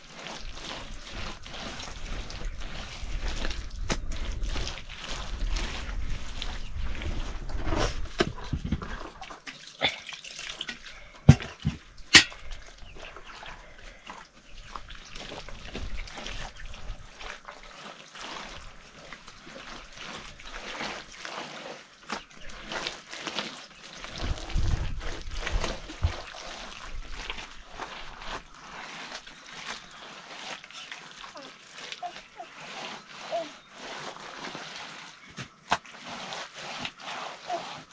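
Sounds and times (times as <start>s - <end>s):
wet plaster slaps and scrapes: 0.1s - 9.6s, 31.8s - 37.9s.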